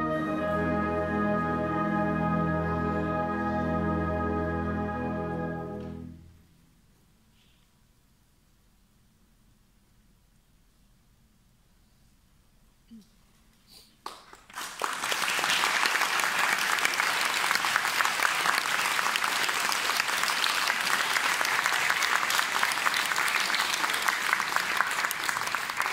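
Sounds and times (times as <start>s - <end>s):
audience applauding: 14.0s - 25.9s.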